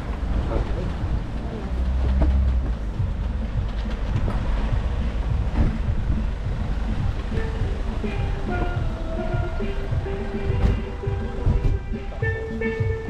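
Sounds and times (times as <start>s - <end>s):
steady low rumble: 0.0s - 13.0s
faint knocks and rattles: 0.5s - 8.9s.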